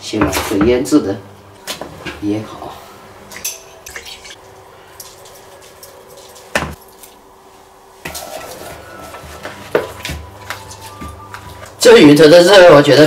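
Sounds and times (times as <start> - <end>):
kitchenware clinking and tapping: 3.3 - 4.4.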